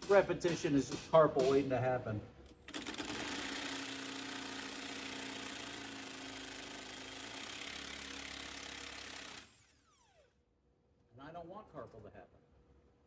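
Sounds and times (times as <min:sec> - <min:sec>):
power tool motor running: 0:02.6 - 0:10.4.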